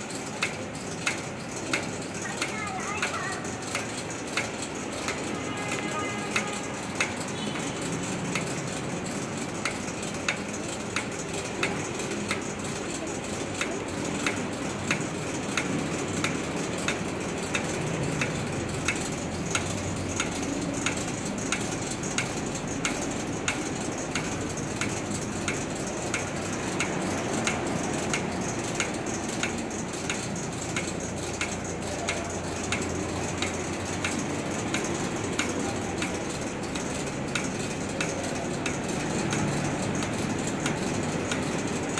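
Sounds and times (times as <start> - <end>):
conveyor machinery running: 0.0 - 41.9
regular sharp clicks: 0.0 - 41.9.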